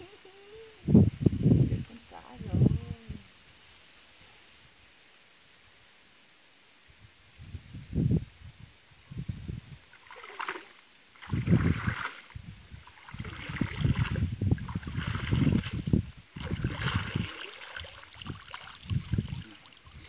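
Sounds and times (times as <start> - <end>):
water sloshing and splashing: 9.9 - 20.0
water streaming off net: 9.9 - 20.0.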